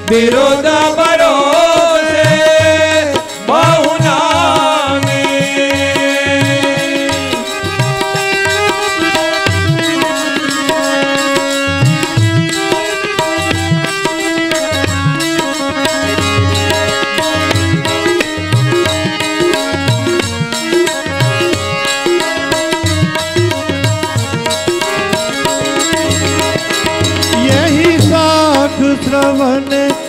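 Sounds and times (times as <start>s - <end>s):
person singing: 0.0s - 11.2s, 27.1s - 30.0s
harmonium melody: 0.0s - 30.0s.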